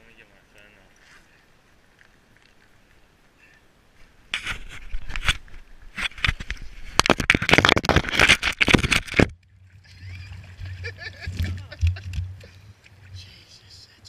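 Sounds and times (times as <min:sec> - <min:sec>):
camera handling noise: 0:04.3 - 0:09.3.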